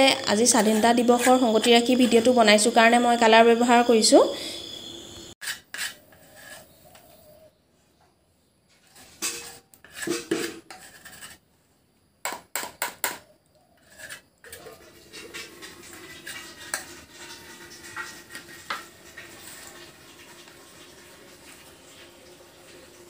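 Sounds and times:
metal spoon scraping a saucepan: 0:00.0 - 0:02.4, 0:05.4 - 0:07.2, 0:08.8 - 0:11.4, 0:13.0 - 0:19.8.

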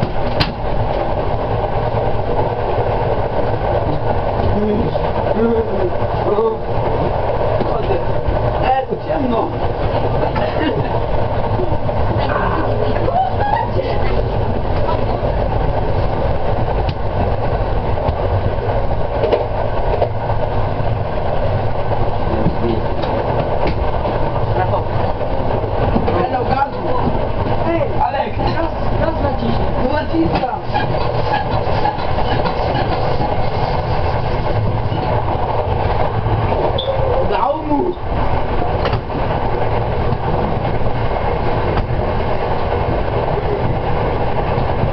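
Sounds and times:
sharp rail clicks: 0:00.0 - 0:05.3, 0:14.6 - 0:27.6, 0:37.8 - 0:44.9
train rumbling on rails: 0:00.0 - 0:44.9.

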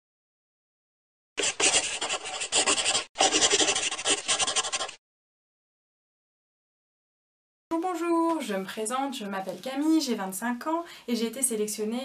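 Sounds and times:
scratchy rasping rubbing: 0:01.4 - 0:05.0.

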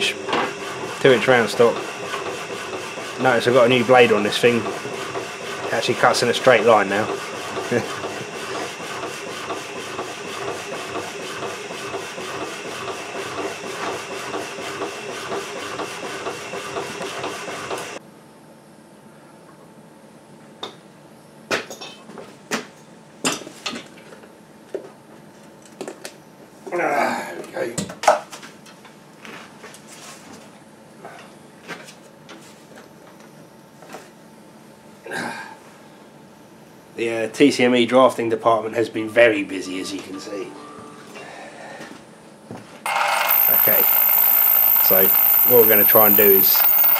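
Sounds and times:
electric motor running: 0:42.9 - 0:46.9.

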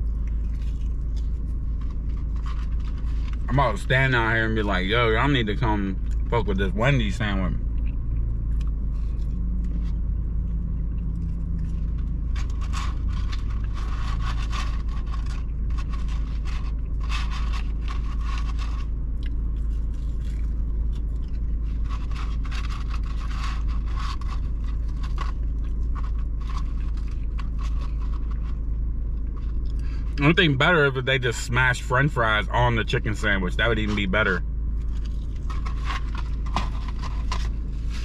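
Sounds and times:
person chewing: 0:00.0 - 0:03.5, 0:07.6 - 0:30.2, 0:34.8 - 0:38.0
car idling: 0:00.0 - 0:38.0
paper rustling: 0:00.4 - 0:04.0, 0:11.6 - 0:19.0, 0:21.3 - 0:30.4, 0:33.6 - 0:38.0.

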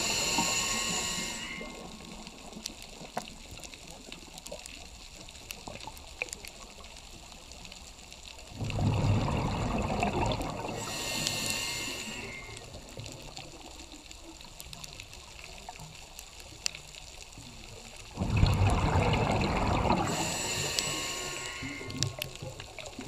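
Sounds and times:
hissing inhale through regulator: 0:00.0 - 0:02.5, 0:08.9 - 0:13.1, 0:18.2 - 0:22.9
faint scattered clicks: 0:00.1 - 0:08.8, 0:10.2 - 0:18.1, 0:19.2 - 0:23.0
exhaled bubbles rushing: 0:08.6 - 0:10.8, 0:18.1 - 0:23.0.

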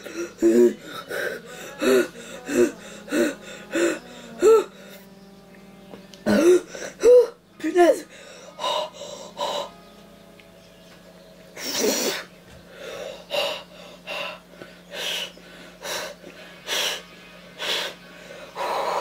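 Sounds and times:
person breathing hard: 0:00.0 - 0:05.0, 0:08.0 - 0:09.7, 0:11.6 - 0:17.0, 0:17.6 - 0:19.0.

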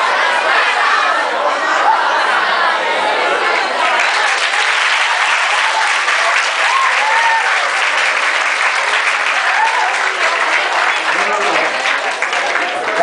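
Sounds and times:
people clapping: 0:03.4 - 0:13.0.

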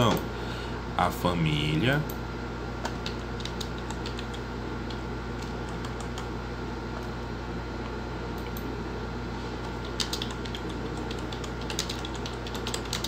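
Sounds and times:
steady low hum: 0:00.0 - 0:13.0
computer keyboard typing: 0:02.8 - 0:06.3, 0:09.6 - 0:13.0.

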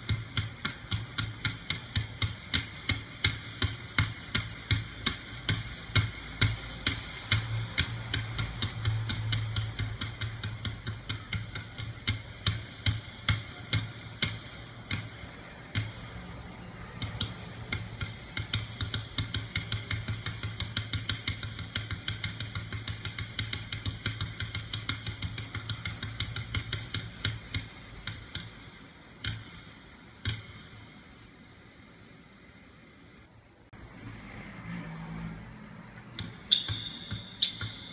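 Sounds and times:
basketballs bouncing on court floor: 0:00.0 - 0:28.6, 0:29.2 - 0:30.7, 0:36.1 - 0:37.9.

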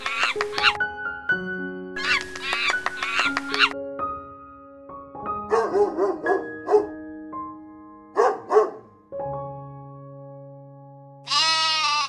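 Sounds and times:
background music: 0:00.0 - 0:12.0
dog barking: 0:05.5 - 0:07.0, 0:08.1 - 0:08.9
goat bleating: 0:11.3 - 0:12.0.

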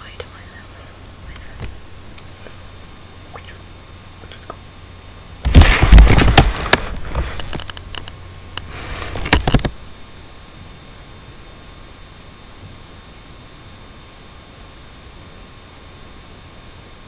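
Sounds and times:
camera handling noise: 0:05.5 - 0:08.2, 0:08.9 - 0:09.7.

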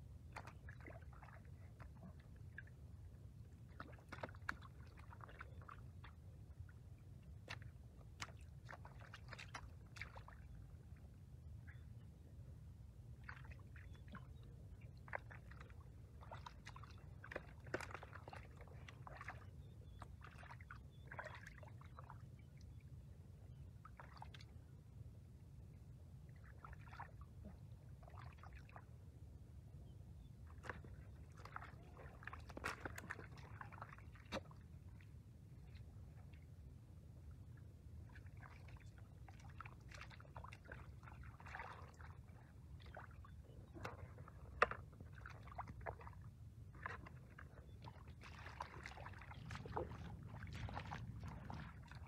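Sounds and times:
low steady rumble: 0:00.0 - 0:52.0
water splashes and wet slaps: 0:00.2 - 0:02.4, 0:03.6 - 0:10.6, 0:13.2 - 0:22.2, 0:30.5 - 0:35.0, 0:38.1 - 0:52.0
hands squelching in muddy water: 0:00.2 - 0:02.9, 0:03.6 - 0:10.6, 0:13.2 - 0:22.3, 0:30.2 - 0:35.2, 0:37.7 - 0:52.0.

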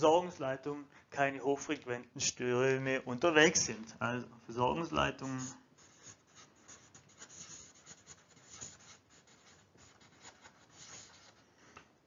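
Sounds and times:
marker scratching on whiteboard: 0:05.2 - 0:11.4.

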